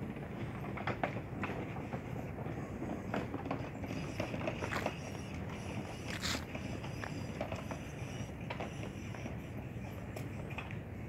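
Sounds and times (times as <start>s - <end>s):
footsteps crunching on dry leaves: 6.0s - 7.1s.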